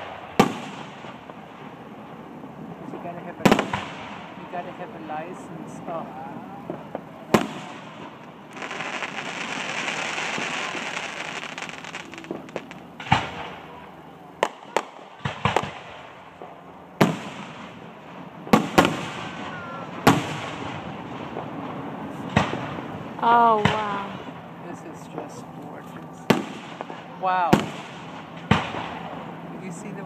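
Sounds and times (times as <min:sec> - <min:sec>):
fireworks bangs: 0:00.0 - 0:30.0
fireworks hissing: 0:06.6 - 0:13.7.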